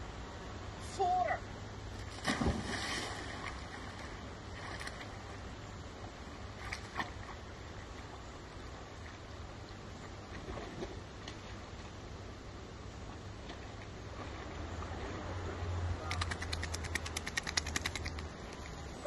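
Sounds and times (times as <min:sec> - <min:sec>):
dog splashing into water: 0:02.1 - 0:03.5
faint splashes or knocks: 0:02.1 - 0:03.8.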